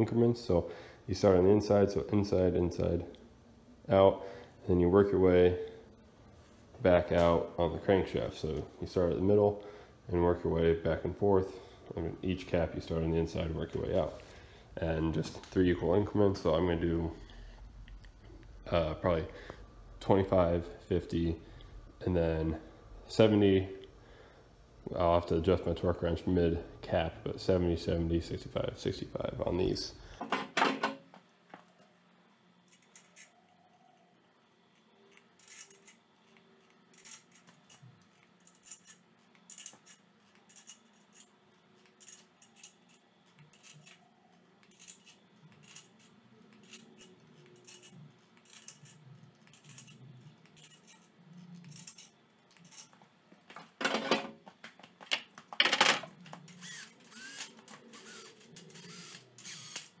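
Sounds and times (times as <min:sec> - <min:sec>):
ratcheting torque wrench clicking: 0:56.5 - 1:00.0.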